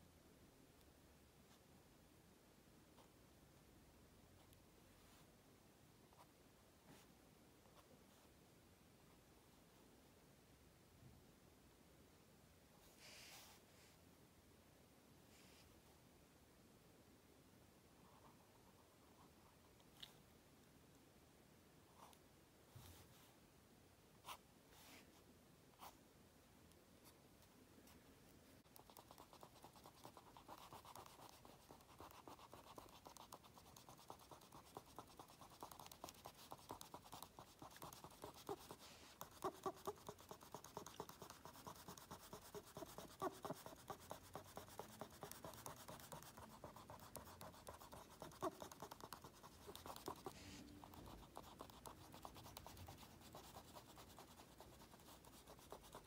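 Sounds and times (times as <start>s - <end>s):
pen scratching on card: 28.7s - 56.0s.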